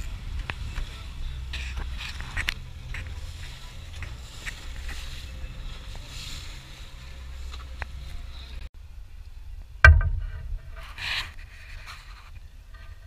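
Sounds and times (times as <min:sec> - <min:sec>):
outboard motors droning: 0:00.0 - 0:08.7.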